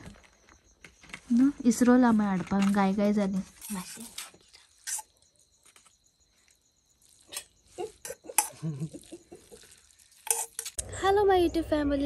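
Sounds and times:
metal utensils clinking on pans: 0:07.4 - 0:08.6, 0:10.2 - 0:10.8.

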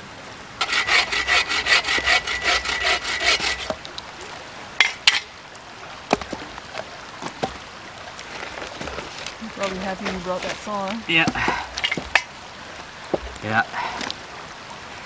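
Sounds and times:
bow saw cutting firewood: 0:00.6 - 0:03.8
sharp knocks and cracks: 0:06.1 - 0:07.6.

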